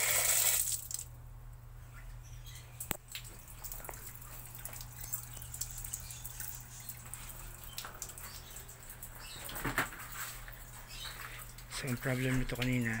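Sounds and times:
water splashing into washing machine: 0.0 - 1.1
steady low hum: 0.1 - 13.0.

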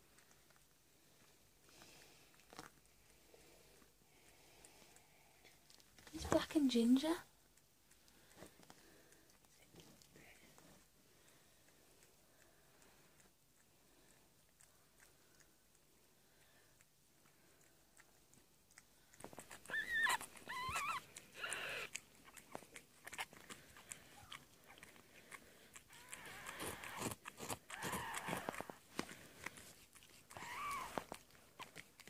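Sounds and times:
cat licking: 7.3 - 32.0
kitten mewing: 19.4 - 22.4, 25.8 - 28.8, 30.3 - 31.7.

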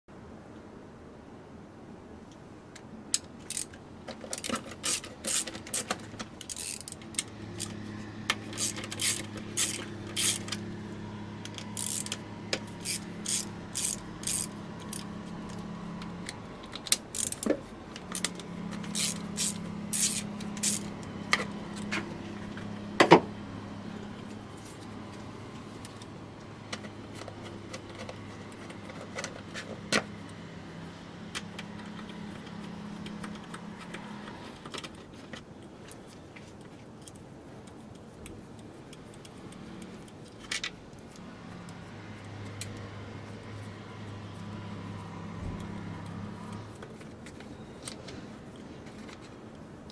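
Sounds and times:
socket ratchet clicking: 3.2 - 10.7, 11.4 - 15.6, 16.2 - 21.9.

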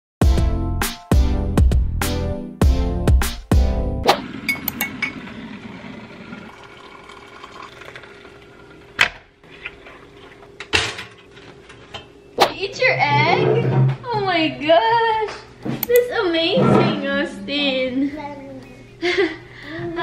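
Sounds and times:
water pouring into a mug: 4.3 - 10.5.

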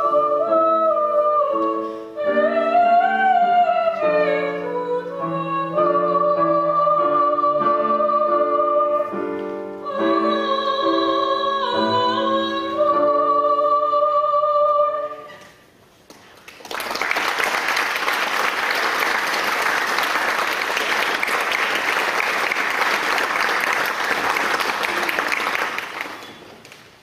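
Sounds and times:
audience applauding: 16.2 - 27.0.

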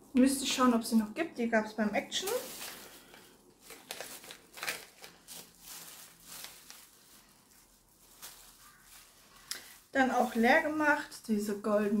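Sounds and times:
packaging rustling and crinkling: 1.9 - 11.1.

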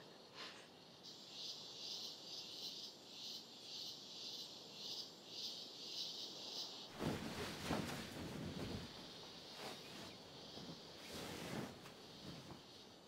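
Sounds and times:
crickets chirping: 0.0 - 13.0
bedclothes rustling: 7.0 - 13.0.

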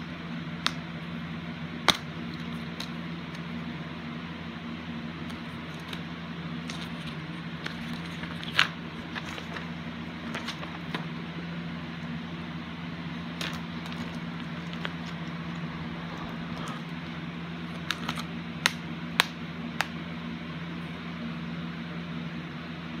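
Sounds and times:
background hiss and hum: 0.0 - 23.0
paper rustling: 6.6 - 11.1, 13.3 - 17.0.

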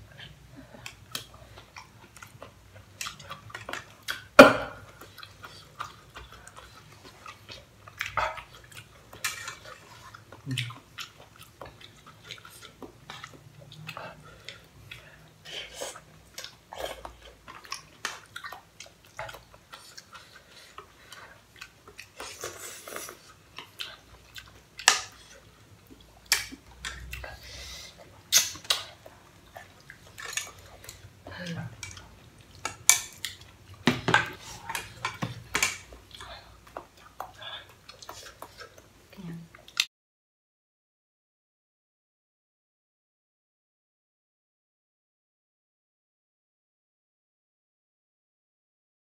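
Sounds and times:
chewing: 0.2 - 39.9.

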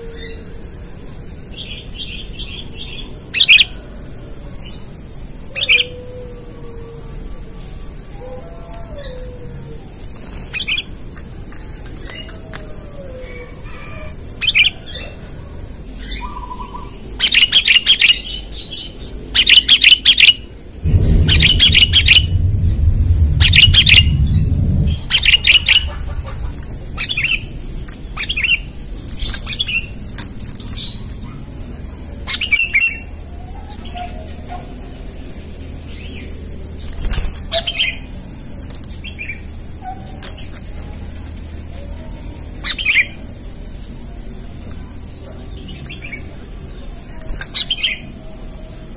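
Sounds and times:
loud low rushing noise: 20.8 - 28.9
bird chirping calls: 23.3 - 30.0.

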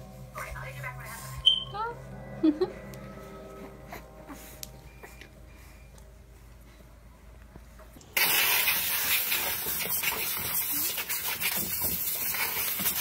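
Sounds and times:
hose nozzle spraying water: 8.2 - 13.0.

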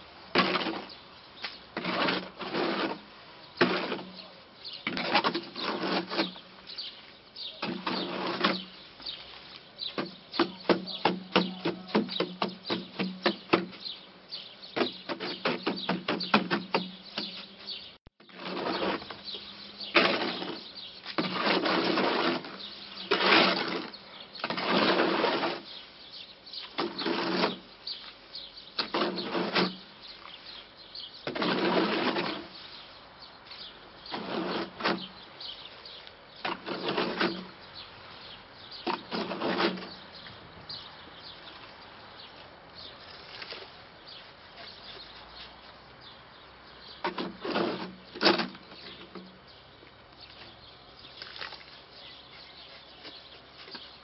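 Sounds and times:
shovel scraping wet concrete: 0.0 - 6.8, 7.5 - 9.3, 14.8 - 17.5, 18.2 - 25.8, 26.6 - 28.1, 28.8 - 30.3, 31.2 - 32.8, 33.6 - 35.2, 35.9 - 37.6, 38.8 - 40.0, 47.0 - 49.3.

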